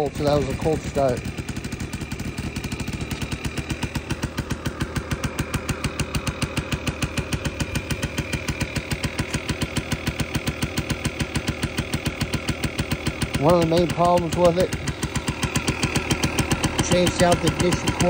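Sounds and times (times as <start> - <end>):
moped engine idling: 0.0 - 18.0.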